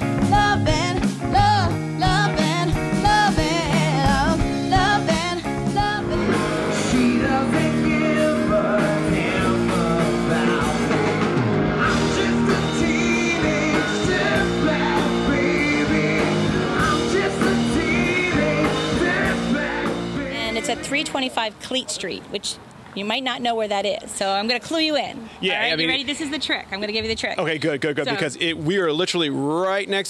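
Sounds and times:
woman singing: 0.0 - 10.6, 12.0 - 21.4
rock band with electric guitars: 0.0 - 21.0.

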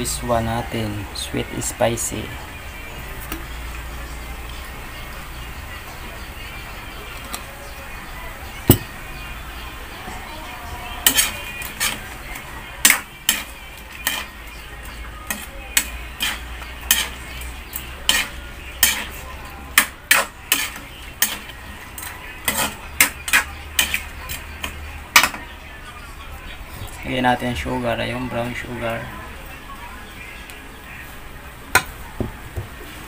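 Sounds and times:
spatula scraping a wok: 10.2 - 25.3.

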